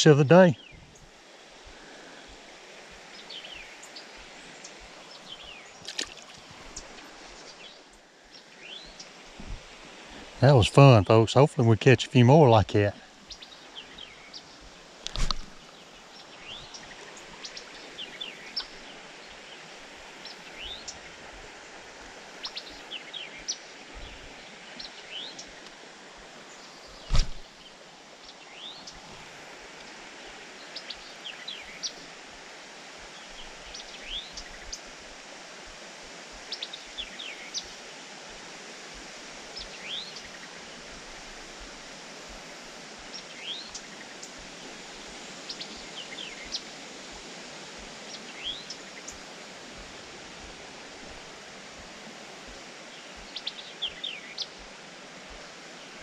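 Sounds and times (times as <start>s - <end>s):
birds chirping: 0.0s - 0.8s
flowing creek water: 0.0s - 56.0s
sharp knock: 27.1s - 27.4s.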